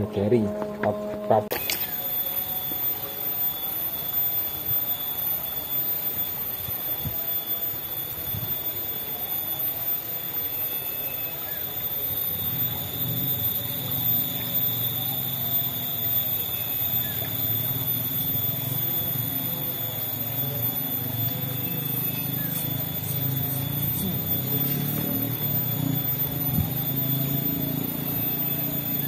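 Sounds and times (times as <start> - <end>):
forest insects droning: 0.0 - 29.0
faint bird chirps: 9.0 - 29.0.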